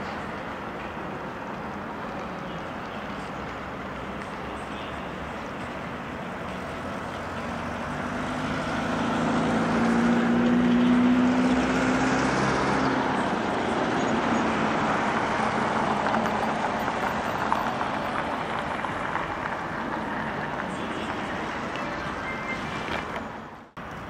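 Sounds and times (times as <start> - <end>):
steady traffic noise: 0.0 - 24.0
motor vehicle driving past: 7.5 - 13.1.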